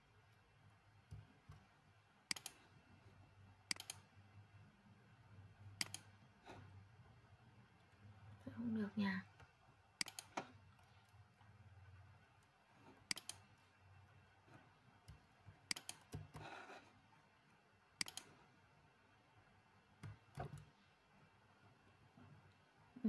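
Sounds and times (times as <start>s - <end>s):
mouse and keyboard clicks: 2.3s - 2.7s, 3.6s - 4.1s, 5.8s - 6.6s, 9.4s - 11.2s, 12.4s - 13.6s, 15.0s - 16.8s, 18.0s - 18.4s, 20.0s - 20.7s.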